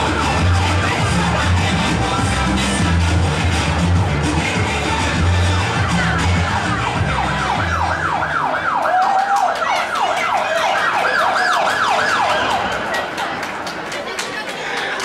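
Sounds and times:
music with heavy bass: 0.0 - 8.8
siren sound effect yelping: 6.0 - 12.9.

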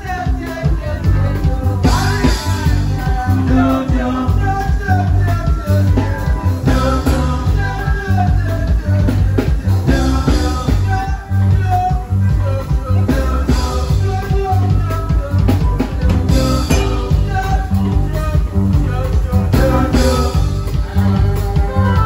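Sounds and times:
man singing into microphone: 0.0 - 22.0.

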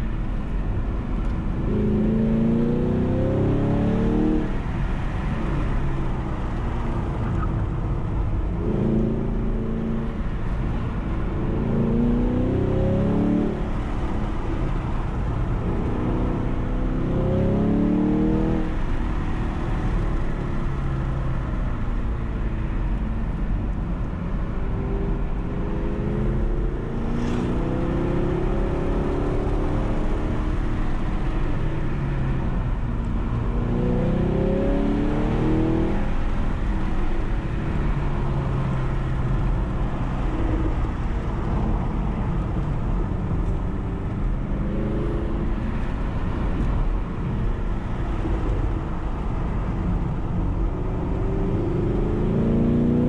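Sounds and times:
road and wind rumble: 0.0 - 53.0
car engine accelerating: 25.0 - 53.0.

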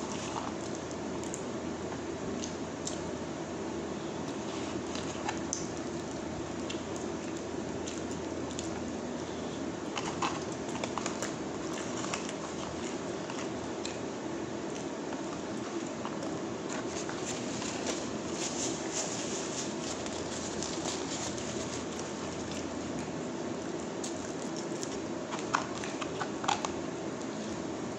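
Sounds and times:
air conditioner humming: 0.0 - 27.9
plastic sachet and paper bag crinkling: 15.2 - 23.0.

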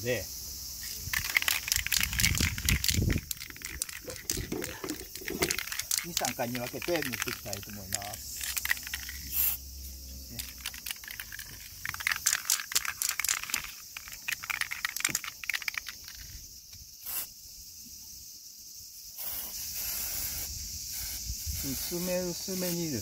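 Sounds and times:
aerosol can spraying: 0.8 - 9.6, 17.0 - 17.3, 19.2 - 23.0
can and plastic cap rattling: 0.8 - 9.6, 10.3 - 16.4.

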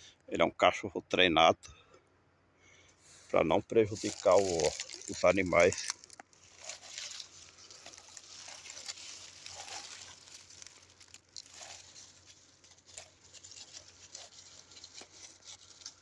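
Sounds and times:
dry leaves rustling and crackling: 3.7 - 16.0.

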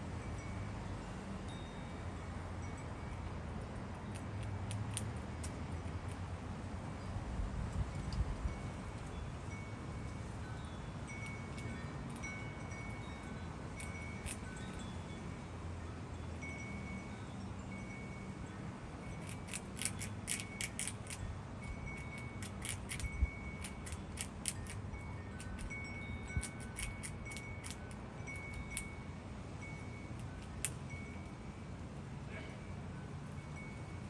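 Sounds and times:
light chime tones: 0.1 - 4.2, 7.9 - 19.5, 20.1 - 24.0, 24.6 - 34.0
squirrel gnawing walnut shell: 3.6 - 6.7, 11.1 - 14.8, 18.9 - 29.0, 30.0 - 30.8.

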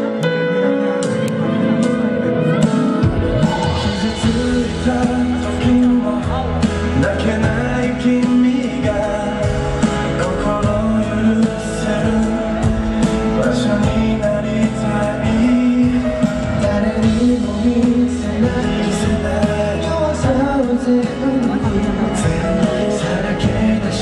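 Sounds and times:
backing band track: 0.0 - 24.0
man singing pop ballad: 0.0 - 24.0.

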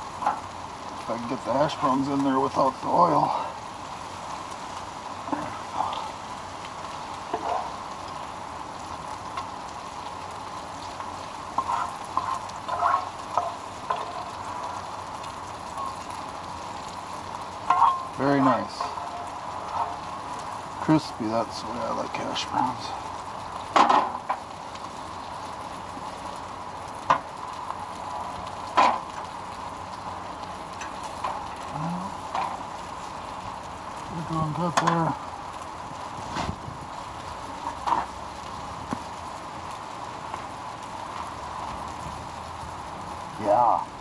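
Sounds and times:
hash browns sizzling in a pan: 0.0 - 44.0
spatula scraping a pan: 11.5 - 14.4.

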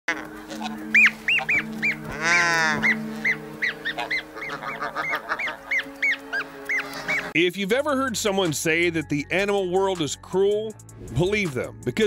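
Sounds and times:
geese honking: 0.1 - 7.4.

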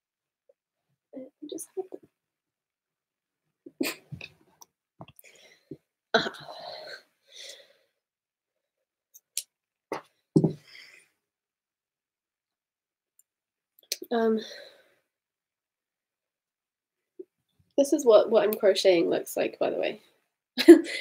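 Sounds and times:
microphone handling knocks and rustles: 10.4 - 10.6.

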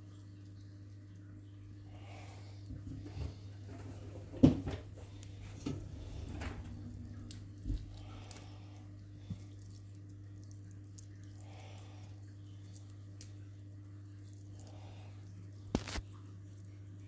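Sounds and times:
steady low hum: 0.0 - 17.0
cat chewing: 6.8 - 16.7.

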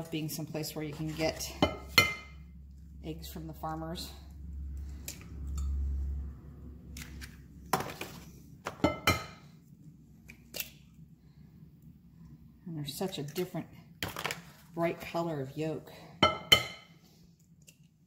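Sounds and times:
low rumble: 2.4 - 7.7.

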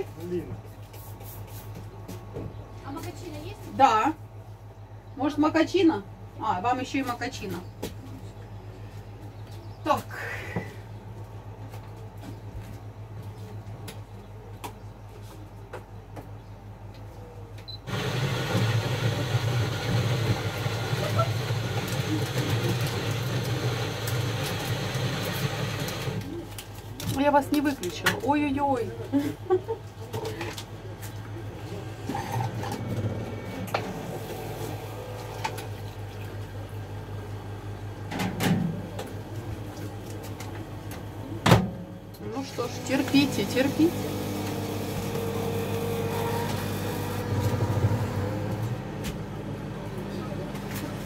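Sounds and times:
electrical hum of appliances: 0.0 - 51.0
coffee machine motor hum with hiss: 17.9 - 26.4, 31.8 - 37.6, 42.3 - 51.0.

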